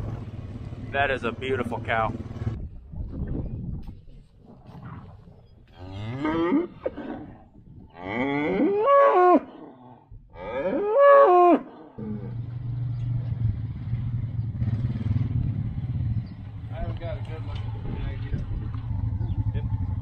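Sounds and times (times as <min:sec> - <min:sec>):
vehicle engine humming: 0:00.0 - 0:02.6, 0:12.0 - 0:20.0
cow mooing: 0:05.7 - 0:12.7.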